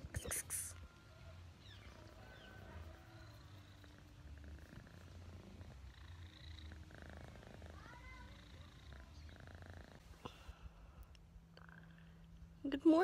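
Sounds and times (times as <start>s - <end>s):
kitten purring: 2.9s - 10.2s.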